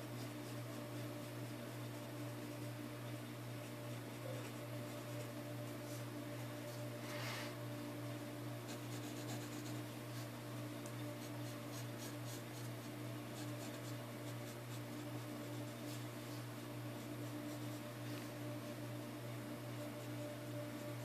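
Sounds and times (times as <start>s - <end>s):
steady low hum: 0.0s - 21.0s
pencil scratching on paper: 0.1s - 2.8s, 8.6s - 10.4s, 11.1s - 18.8s, 19.8s - 21.0s.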